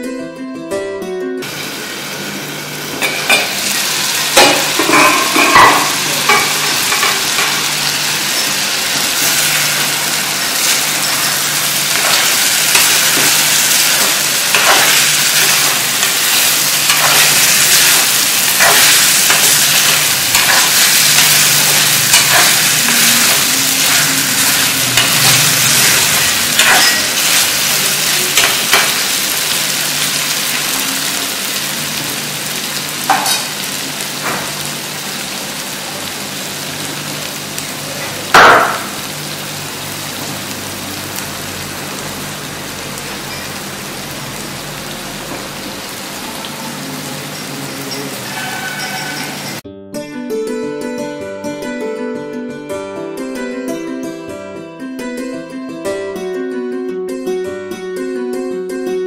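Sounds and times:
chicken sizzling in a pan: 1.4 - 49.6
ladle scraping and clinking pan: 14.0 - 27.5, 47.9 - 49.6.

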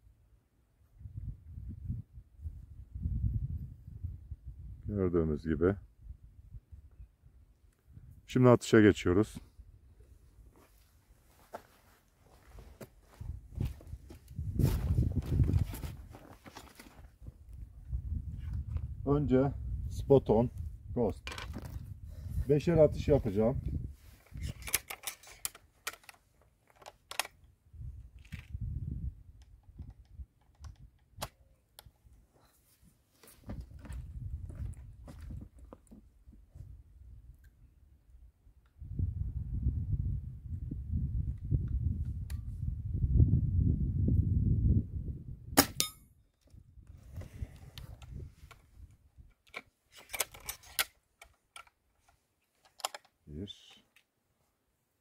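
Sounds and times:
rustling: 10.5 - 17.2
air rifle clicks and knocks: 21.2 - 21.8, 24.4 - 27.4, 29.4 - 31.9, 49.2 - 53.2
air rifle shot: 45.6 - 45.9.

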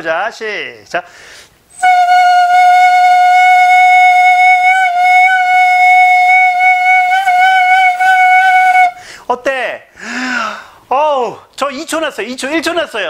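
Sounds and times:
flute long steady note: 1.8 - 9.0.

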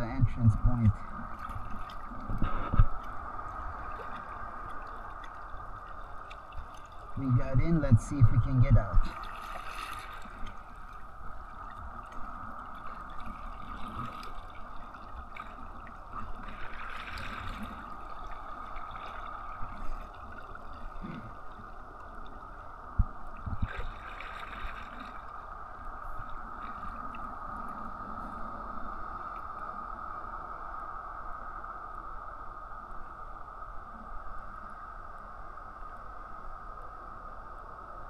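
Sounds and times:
water splashes: 0.0 - 29.7
water lapping against kayak hull: 0.3 - 29.5.

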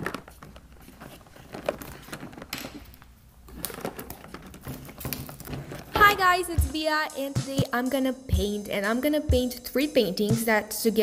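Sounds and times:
plastic wrap crinkling: 0.0 - 6.6.

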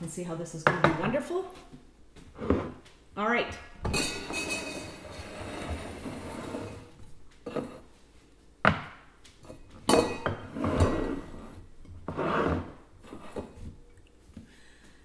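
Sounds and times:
metal cup clattering and clinking: 3.9 - 5.0.

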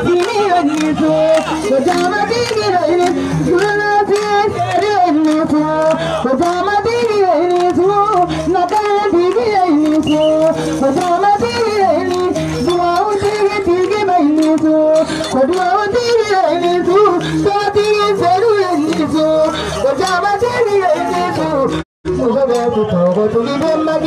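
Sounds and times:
person singing: 0.0 - 24.0.

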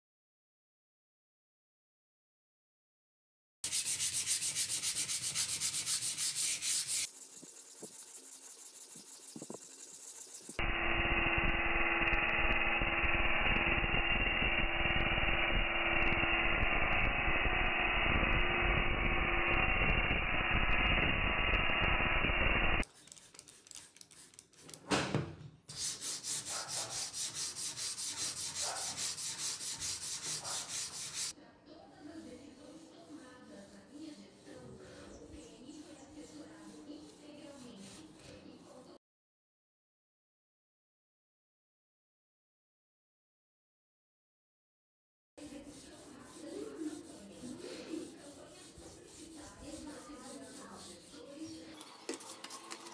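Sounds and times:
sanding block rubbing metal: 3.6 - 10.6, 22.8 - 24.8, 25.7 - 31.3, 32.2 - 38.6, 45.4 - 52.9
rotary tool grinding metal: 3.7 - 10.6, 25.8 - 31.3, 45.4 - 52.9
knock: 24.9 - 25.5.

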